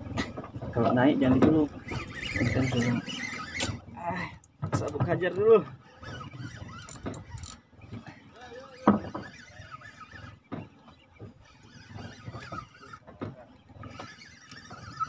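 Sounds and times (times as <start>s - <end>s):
fishing reel cranking: 1.6s - 4.4s, 5.2s - 10.4s, 11.3s - 13.0s, 13.8s - 15.0s.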